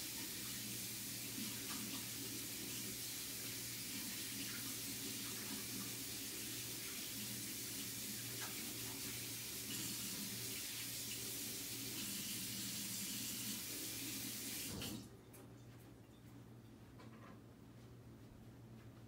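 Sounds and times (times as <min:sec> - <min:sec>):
tap water running into sink: 0:00.0 - 0:15.1.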